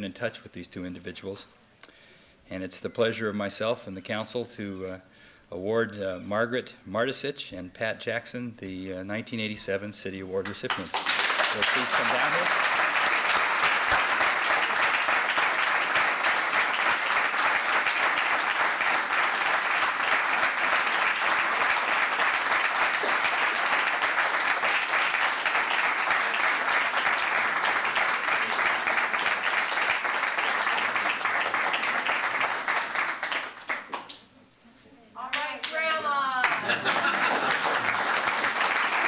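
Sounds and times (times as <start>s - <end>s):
audience applauding: 10.7s - 34.2s, 35.3s - 39.0s.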